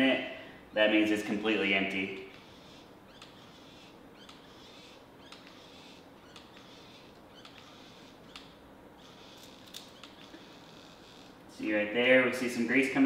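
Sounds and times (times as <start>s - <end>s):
grease gun squeaking: 2.2s - 11.4s.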